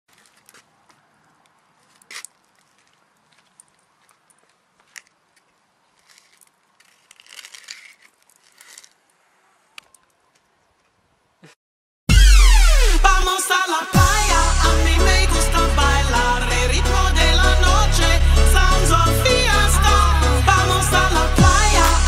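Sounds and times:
wrapper crinkling: 0:05.8 - 0:09.2
snack crunching: 0:05.9 - 0:09.0.

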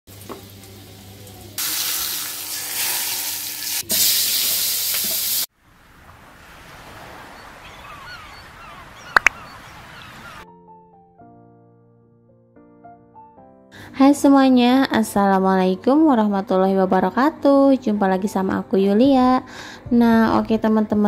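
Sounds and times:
hot oil sizzling in a wok: 0:00.1 - 0:05.5
faint chirps: 0:07.4 - 0:10.4
sharp clicks: 0:09.1 - 0:09.4.

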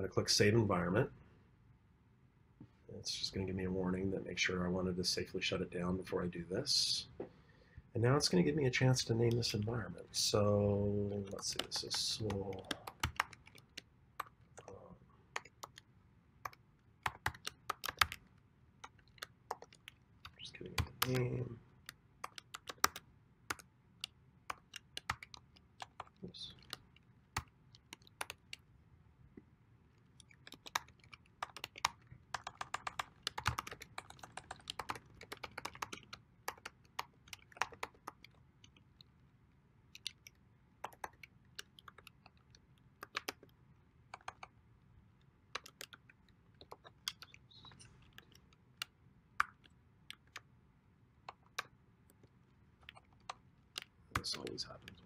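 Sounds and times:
computer keyboard typing: 0:11.2 - 0:14.7, 0:15.4 - 0:28.6, 0:30.2 - 0:39.1, 0:39.9 - 0:43.5, 0:44.1 - 0:44.5, 0:45.5 - 0:47.4, 0:48.0 - 0:50.4, 0:51.3 - 0:55.0.

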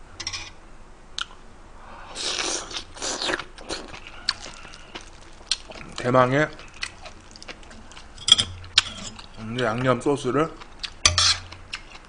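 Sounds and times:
crab shell crunching and cracking: 0:02.2 - 0:09.4.

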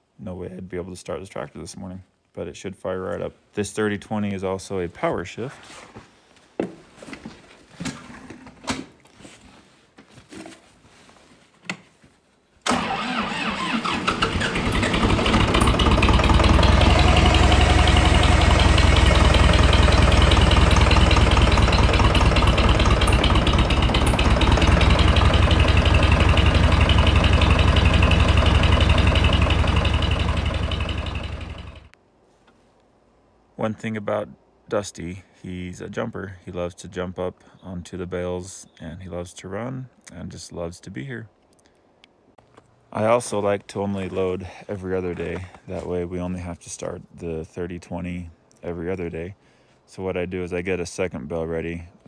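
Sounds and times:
diesel engine cranking and running: 0:12.7 - 0:31.9.

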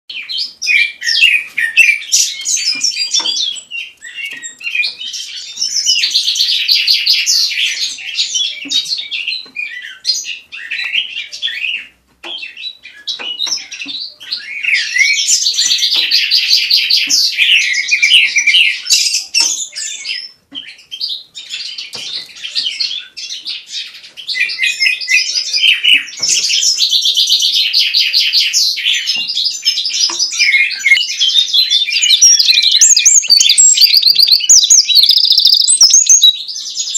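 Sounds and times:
songbird warbling: 0:29.0 - 0:36.6.

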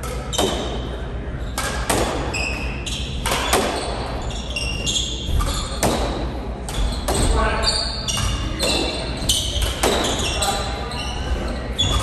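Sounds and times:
squash ball hits echoing: 0:00.0 - 0:00.9, 0:01.5 - 0:04.2, 0:05.2 - 0:10.3
shoes squeaking on wooden floor: 0:02.2 - 0:12.0.

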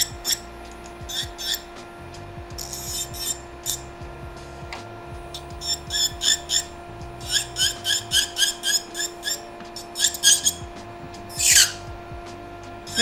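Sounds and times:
high squeaks of sanding bit: 0:00.0 - 0:01.8, 0:02.6 - 0:03.9, 0:05.3 - 0:10.7, 0:11.3 - 0:11.9
electric nail file humming: 0:00.0 - 0:13.0.

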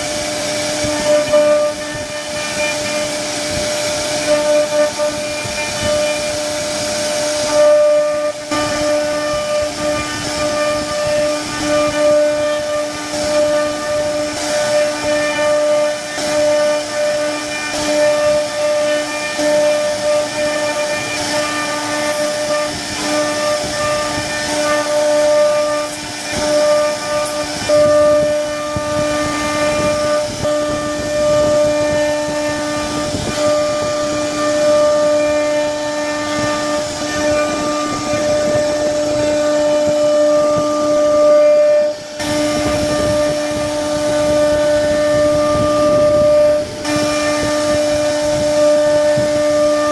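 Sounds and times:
router spindle whine: 0:00.0 - 0:49.9
wood being cut hiss: 0:00.0 - 0:49.9.

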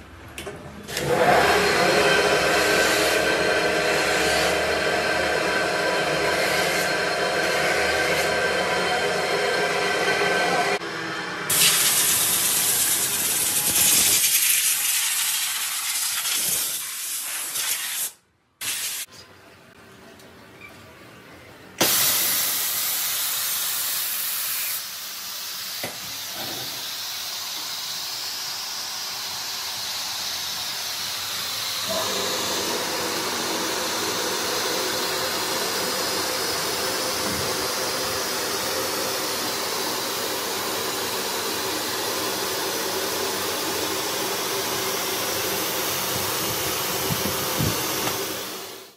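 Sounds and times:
compressed air hissing: 0:11.5 - 0:19.1, 0:21.8 - 0:31.9.

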